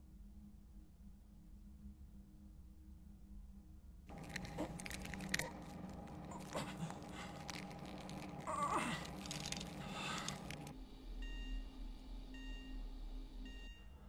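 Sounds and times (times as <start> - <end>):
cable creaking and clicking: 4.1 - 10.7
low hum: 4.1 - 14.0.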